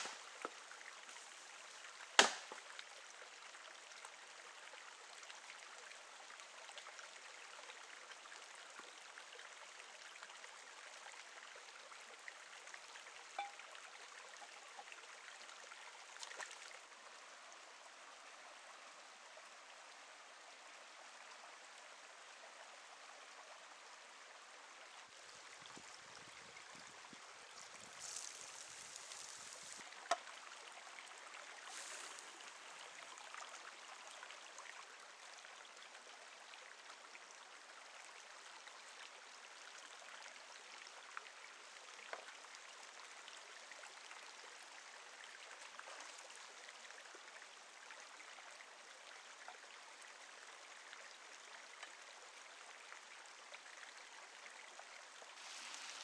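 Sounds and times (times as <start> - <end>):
stream flowing over rocks: 0.0 - 56.0
short bursts of hiss: 55.4 - 56.0.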